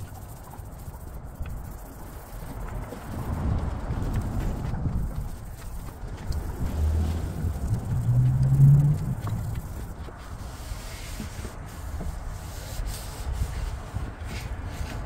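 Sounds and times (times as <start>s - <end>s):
low hum: 0.0s - 10.4s
hand rubbing wooden stick: 0.0s - 15.0s.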